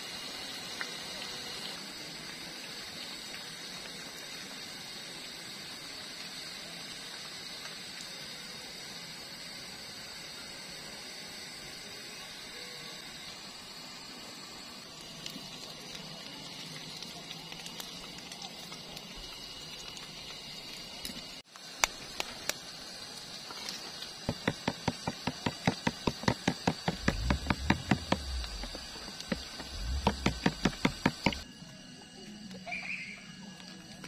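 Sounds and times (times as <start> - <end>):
steady hiss: 0.0 - 31.5
quick taps: 24.3 - 31.4
low thuds: 25.8 - 31.4.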